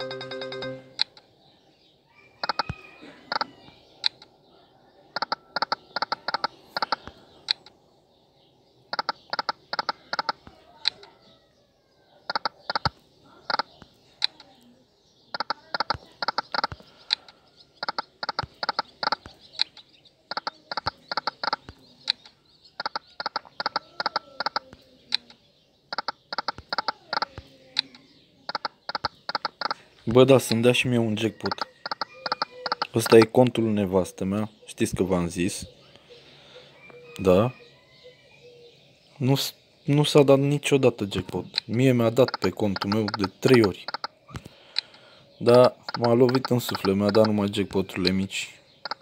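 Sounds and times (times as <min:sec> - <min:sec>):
rapid electronic ticking: 0:17.8 - 0:21.6, 0:22.8 - 0:23.8, 0:25.9 - 0:27.3, 0:28.5 - 0:29.8, 0:31.4 - 0:33.3, 0:42.2 - 0:44.1, 0:45.8 - 0:47.4.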